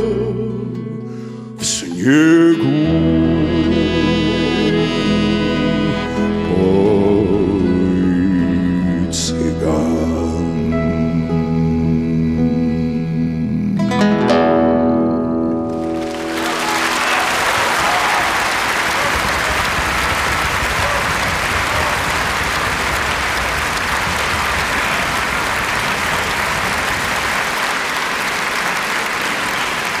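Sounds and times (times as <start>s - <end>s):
audience applauding: 15.7s - 30.0s.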